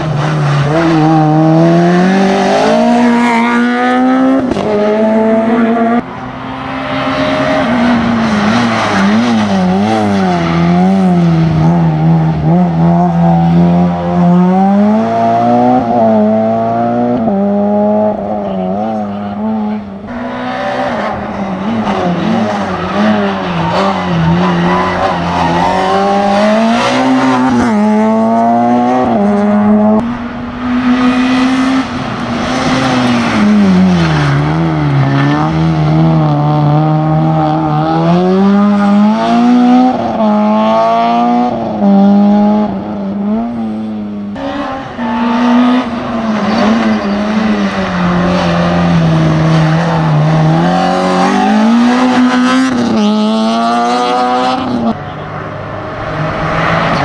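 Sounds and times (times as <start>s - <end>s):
car engines revving: 0.0s - 57.0s.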